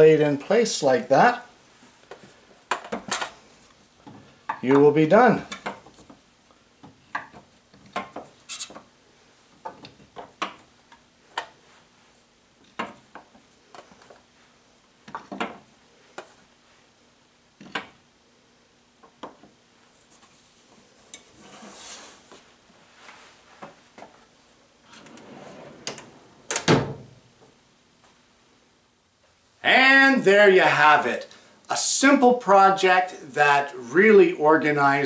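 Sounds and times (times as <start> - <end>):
drawer rolling shut: 24.9 - 27.2.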